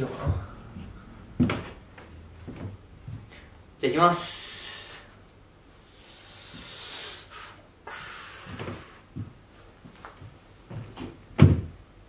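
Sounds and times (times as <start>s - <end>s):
thumps on stage floor: 11.0s - 11.8s.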